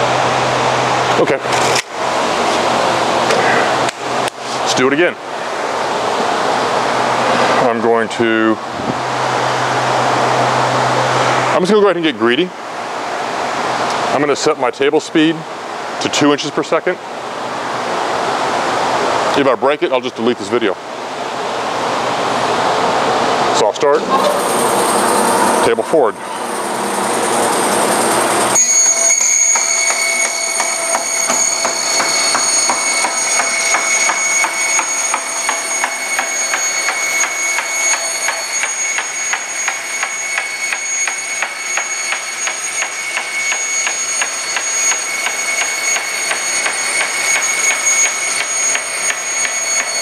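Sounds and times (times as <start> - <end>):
bandsaw whining with rapid ticking: 24.4 - 50.0.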